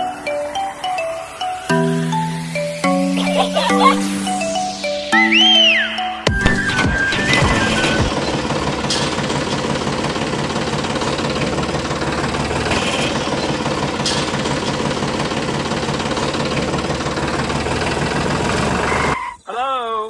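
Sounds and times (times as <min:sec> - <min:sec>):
tractor engine chugging: 0:06.3 - 0:19.2.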